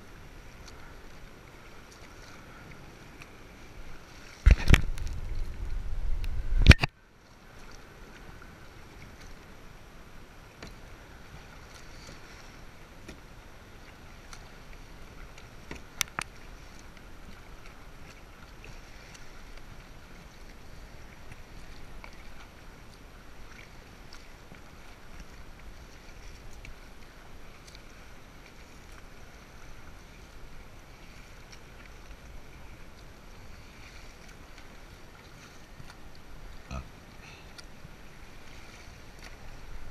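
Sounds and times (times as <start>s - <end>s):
kayak paddle strokes: 0.0s - 39.9s
water sloshing against hull: 0.0s - 39.9s
loud low rumble: 4.9s - 6.8s
sharp click: 6.2s - 6.9s.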